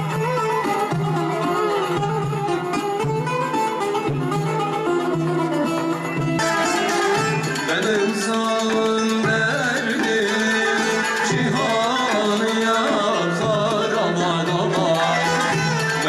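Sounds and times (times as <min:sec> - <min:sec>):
baglama: 0:00.0 - 0:16.0
frame drums: 0:00.0 - 0:16.0
kanun: 0:00.0 - 0:16.0
violin: 0:00.0 - 0:16.0
men singing into microphones: 0:07.5 - 0:16.0.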